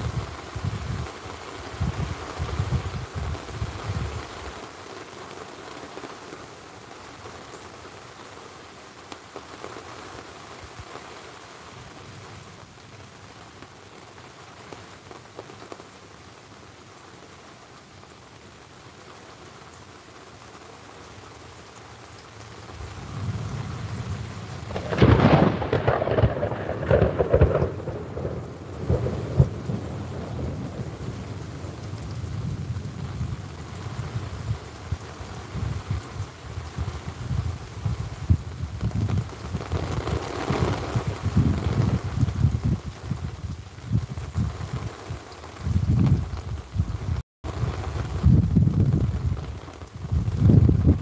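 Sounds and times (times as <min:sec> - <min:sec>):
steady rain falling: 0:00.0 - 0:51.0
thunder cracking and rumbling: 0:22.8 - 0:44.9, 0:45.6 - 0:51.0.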